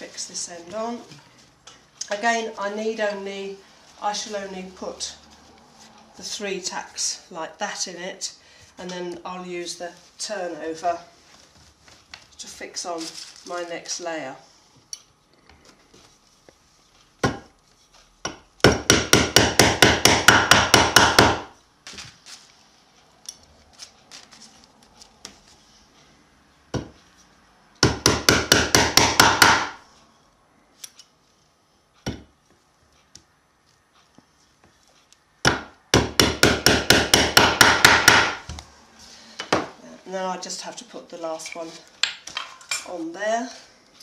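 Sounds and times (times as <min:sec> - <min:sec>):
hammer tapping tacks into wood: 0:18.2 - 0:21.5, 0:27.8 - 0:29.8, 0:35.4 - 0:38.6.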